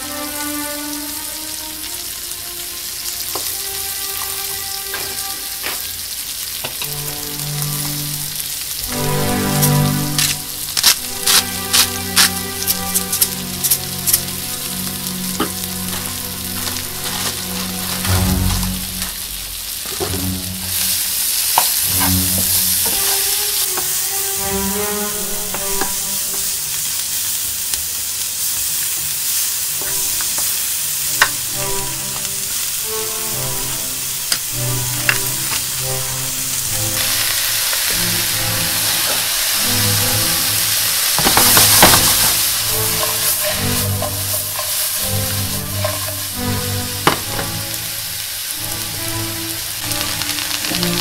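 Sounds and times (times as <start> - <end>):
vegetables sizzling in a frying pan: 0.0 - 51.0
wooden spatula knocking on pan: 41.2 - 46.2, 47.0 - 47.6.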